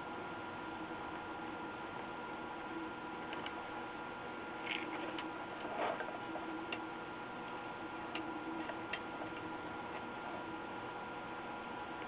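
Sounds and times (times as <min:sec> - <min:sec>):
faint hum: 0:00.0 - 0:12.0
soldering iron ticks and taps: 0:06.7 - 0:10.1.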